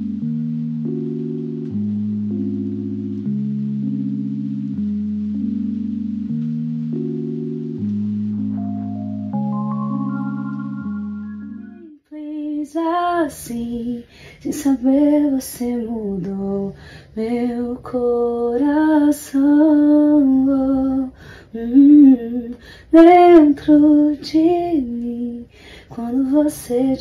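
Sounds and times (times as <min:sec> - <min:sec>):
woman singing: 0:12.1 - 0:27.0
singer breathing: 0:21.2 - 0:21.5, 0:25.5 - 0:26.0.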